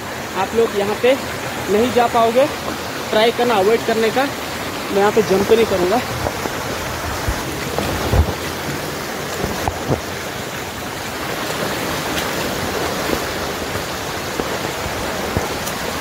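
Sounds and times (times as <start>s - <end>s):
stream and waterfall rushing: 0.0s - 16.0s
low thumps: 6.0s - 10.2s.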